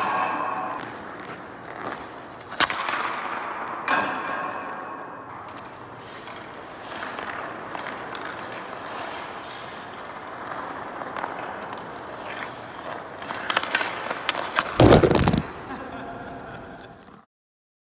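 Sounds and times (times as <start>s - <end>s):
skate blades scraping on ice: 0.0s - 3.9s, 4.6s - 15.8s
stick tapping puck: 3.8s - 15.5s.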